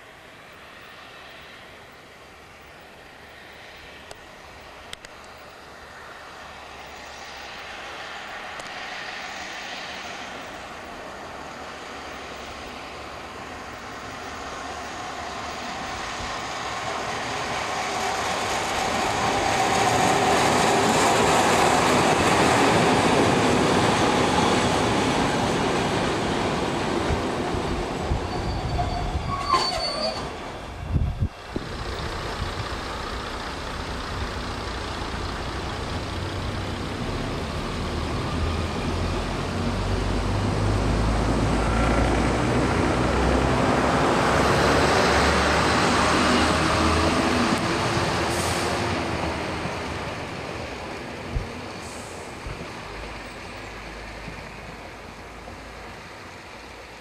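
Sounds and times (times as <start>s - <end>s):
train wheels on rails: 2.5s - 57.0s
diesel engine droning: 30.6s - 50.0s.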